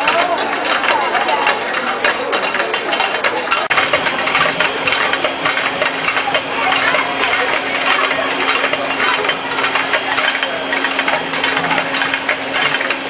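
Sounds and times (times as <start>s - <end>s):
metallic clicking and clattering: 0.0s - 13.0s
steady low hum: 3.6s - 13.0s.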